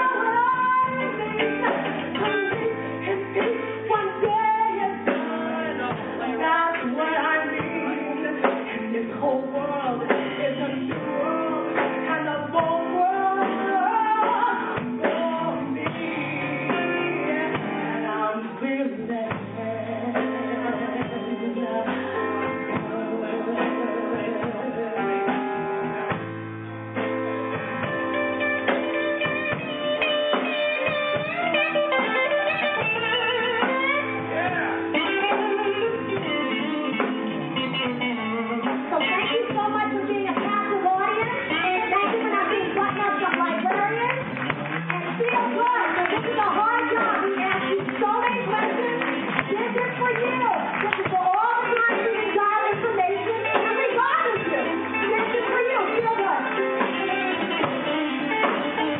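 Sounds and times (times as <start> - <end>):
woman singing: 0.0 - 25.9, 29.1 - 58.9
drum kit: 0.0 - 58.9
electric guitar: 0.0 - 58.9
keyboard: 0.0 - 58.9.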